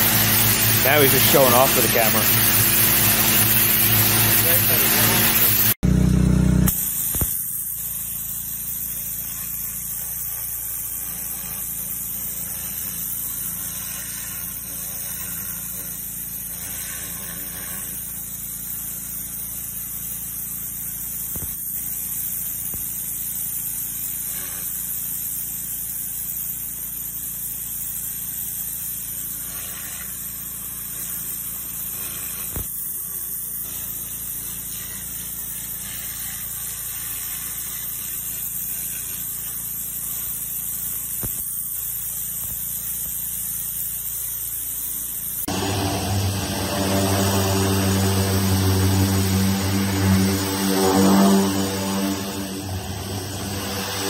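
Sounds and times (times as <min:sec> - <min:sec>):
pressure washer water jet hissing: 0:00.0 - 0:05.8, 0:06.7 - 0:54.0
pressure washer machine hum: 0:00.0 - 0:54.0.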